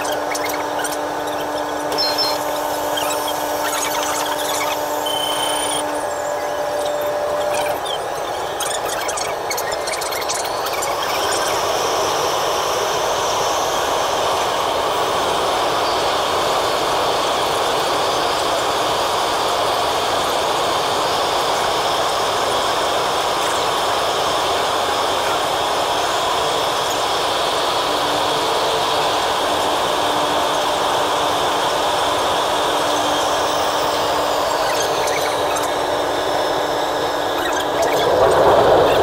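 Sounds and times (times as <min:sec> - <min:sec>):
train rushing through tunnel: 0:34.7 - 0:39.0.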